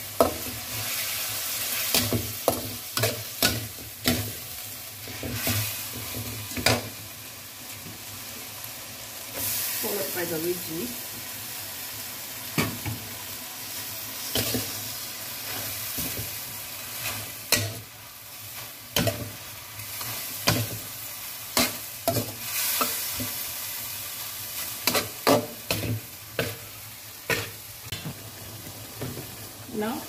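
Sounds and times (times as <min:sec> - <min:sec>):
food sizzling: 0:00.0 - 0:30.0
metal spatula scraping wok: 0:24.6 - 0:26.6.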